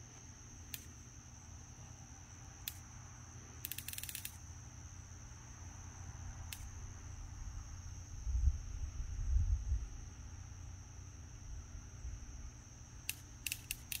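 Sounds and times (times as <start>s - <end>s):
crickets chirping: 0.0s - 14.0s
sharp clicks: 3.6s - 4.4s, 13.0s - 14.0s
low steady rumble: 4.5s - 13.4s.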